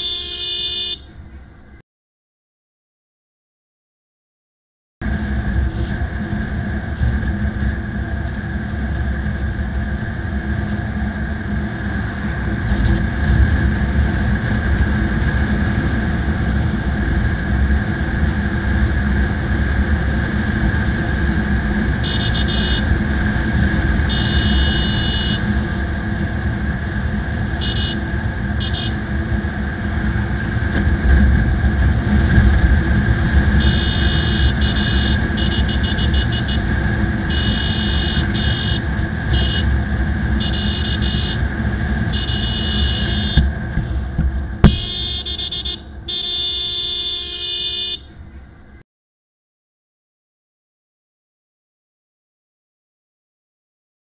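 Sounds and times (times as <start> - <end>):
horn honking: 0.0 - 1.1, 21.9 - 23.0, 24.0 - 25.6, 27.5 - 29.1, 33.4 - 48.2
wind rush on microphone: 5.0 - 42.2
motorcycle engine running: 5.2 - 47.2.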